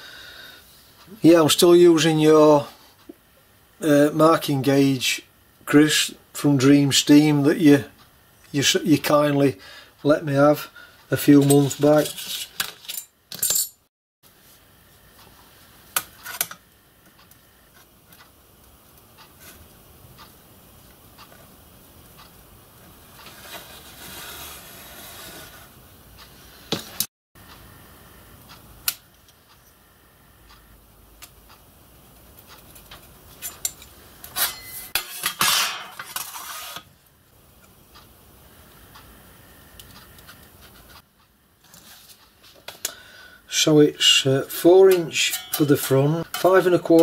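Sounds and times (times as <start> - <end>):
steel tools clinking on brass: 33.4 - 35.8, 44.9 - 46.7
quiet scraping: 35.9 - 36.9.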